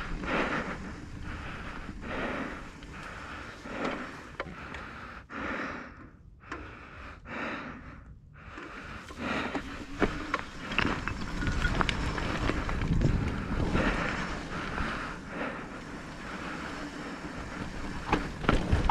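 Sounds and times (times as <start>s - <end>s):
bike knocks and rattles: 8.6s - 14.9s, 16.3s - 18.9s
tyres rolling over dirt and stones: 8.6s - 18.9s.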